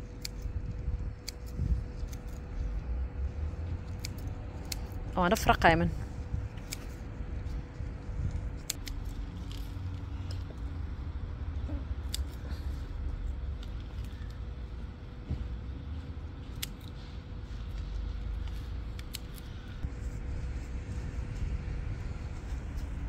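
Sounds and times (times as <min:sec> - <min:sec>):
low rumble: 0:00.0 - 0:23.0
scissors snipping: 0:00.2 - 0:02.5, 0:03.8 - 0:05.1, 0:06.6 - 0:07.0, 0:08.6 - 0:10.5, 0:12.0 - 0:12.5, 0:16.4 - 0:17.0, 0:18.4 - 0:19.6.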